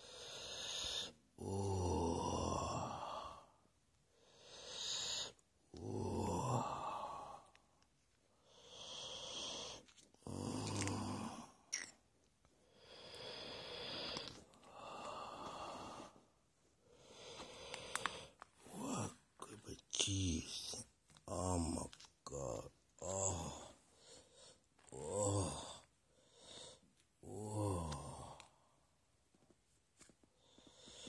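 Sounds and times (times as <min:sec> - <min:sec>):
heavy rasping breathing: 0:12.6 - 0:19.7.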